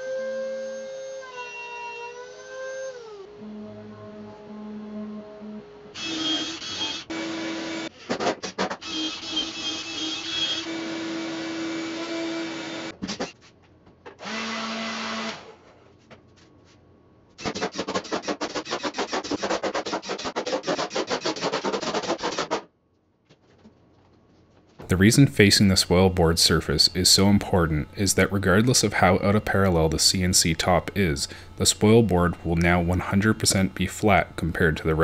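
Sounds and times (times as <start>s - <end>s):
cordless drill spinning screws: 14.2s - 15.5s.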